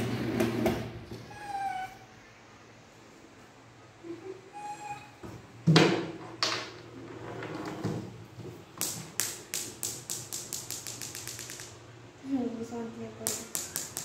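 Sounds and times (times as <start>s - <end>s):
sharp taps: 8.8s - 11.8s, 13.2s - 14.0s.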